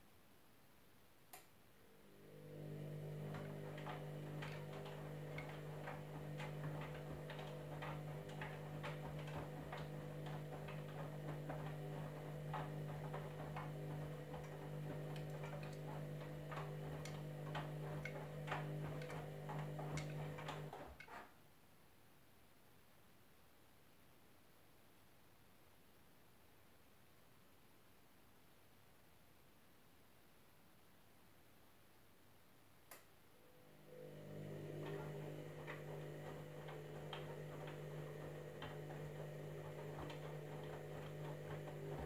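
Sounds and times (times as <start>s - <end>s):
washing machine motor hum: 1.8s - 21.2s, 33.4s - 42.0s
laundry clicking and knocking in drum: 2.7s - 21.2s, 34.1s - 42.0s.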